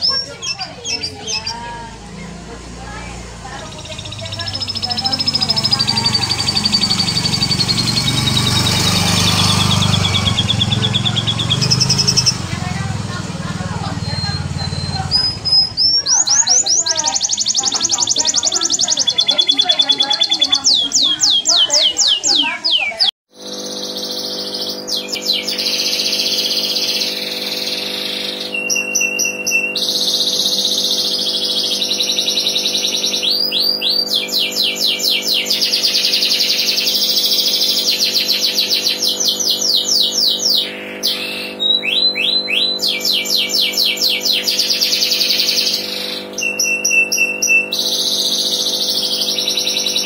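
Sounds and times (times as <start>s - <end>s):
steady low hum: 0.0s - 22.6s
canary trilling: 0.0s - 50.0s.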